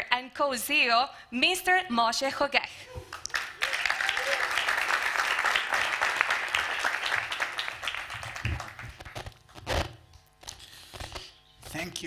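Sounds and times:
audience applauding: 0:03.0 - 0:09.3.

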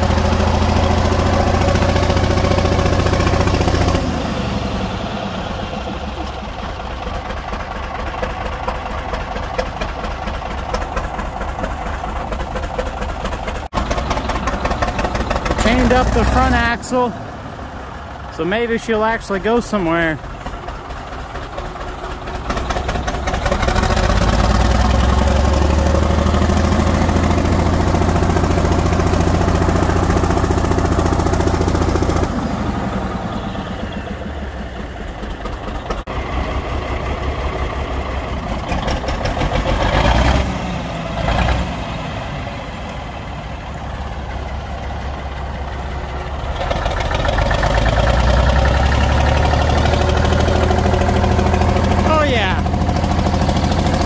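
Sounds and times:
truck engine under load: 0:00.0 - 0:54.0.

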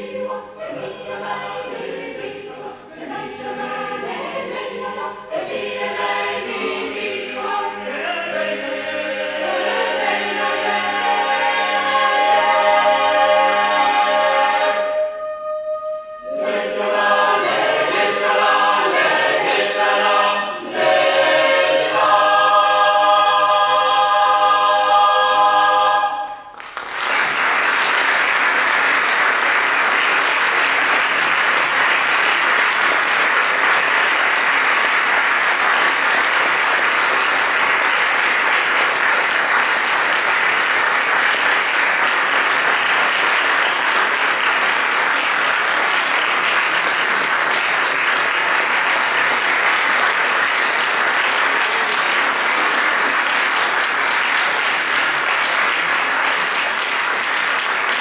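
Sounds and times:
audience applauding: 0:26.2 - 0:58.0.

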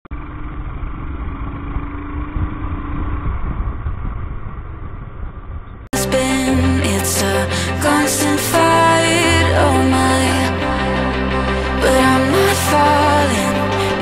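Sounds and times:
motorcycle engine running: 0:00.1 - 0:05.9
road noise rumble: 0:00.1 - 0:06.0
music: 0:06.0 - 0:14.0.

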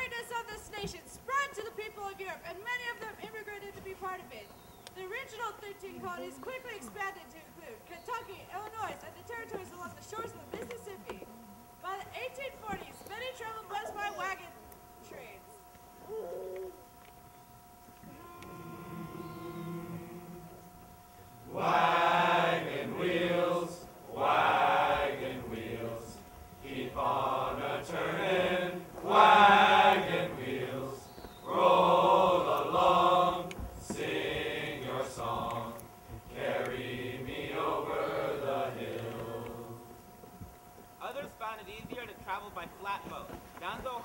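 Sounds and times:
men's choir singing: 0:18.1 - 0:20.7, 0:21.4 - 0:40.0.

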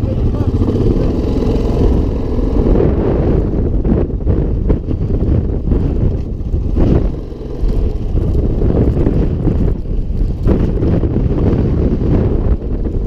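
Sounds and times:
engines idling: 0:00.0 - 0:03.0
wind buffeting microphone: 0:00.0 - 0:13.0.

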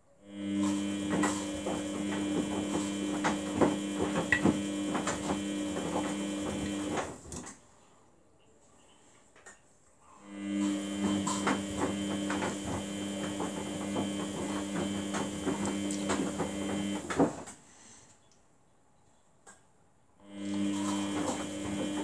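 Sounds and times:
washing machine motor hum: 0:00.2 - 0:07.5, 0:10.2 - 0:17.5, 0:20.2 - 0:22.0.

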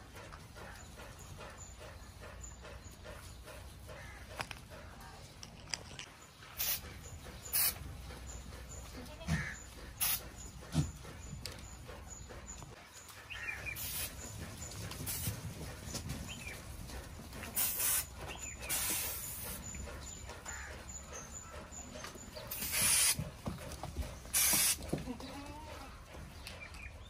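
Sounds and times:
aerosol spray hissing: 0:22.6 - 0:23.2, 0:24.4 - 0:24.8.

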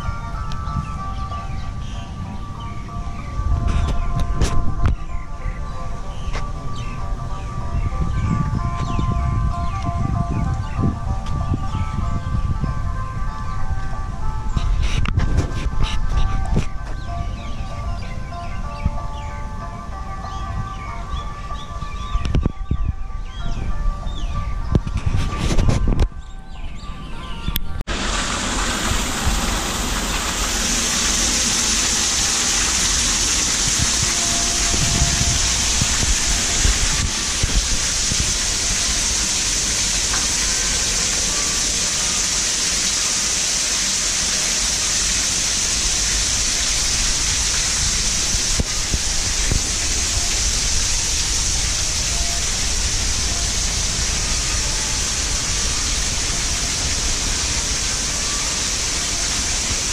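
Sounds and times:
water falling into pool: 0:27.9 - 0:59.9.

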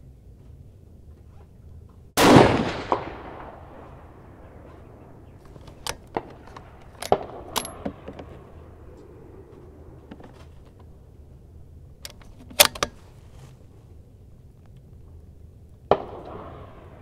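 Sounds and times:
metallic clicks of cartridges: 0:05.5 - 0:08.3, 0:12.0 - 0:13.2
rifle bolt being worked: 0:05.5 - 0:08.3, 0:12.0 - 0:13.0.

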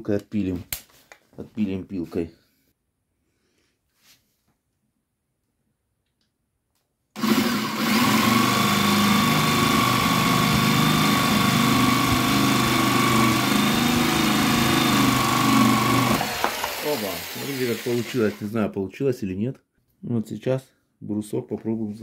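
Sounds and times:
electric jigsaw sawing wood: 0:07.2 - 0:18.6.

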